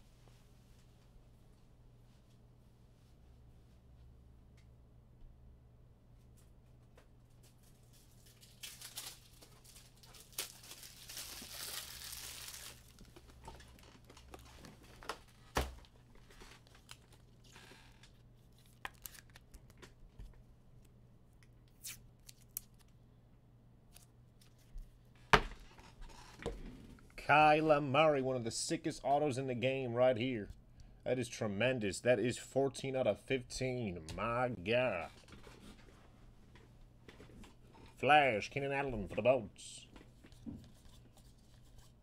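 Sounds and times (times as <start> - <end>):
packaging crinkling and tearing: 7.4 - 15.4, 16.2 - 19.9.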